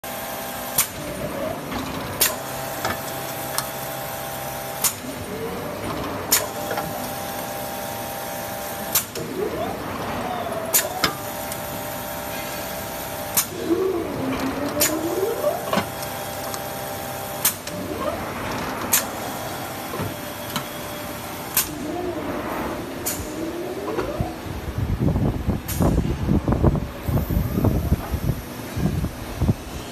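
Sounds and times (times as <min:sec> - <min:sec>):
machine whine and hum: 0:00.0 - 0:29.9
sharp machine clicks: 0:10.5 - 0:11.7, 0:13.2 - 0:16.8, 0:17.4 - 0:19.3.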